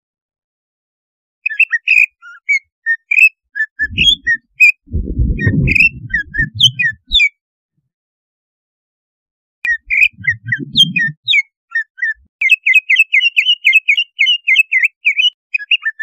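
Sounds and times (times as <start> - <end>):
bird singing high whistled notes: 1.4 - 7.3, 9.7 - 16.0
low rumbling noise: 3.8 - 7.2, 9.9 - 11.2.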